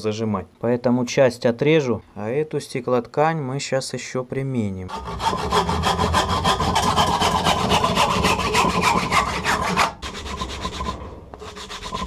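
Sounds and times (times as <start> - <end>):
hand saw cutting wood: 4.9 - 12.0.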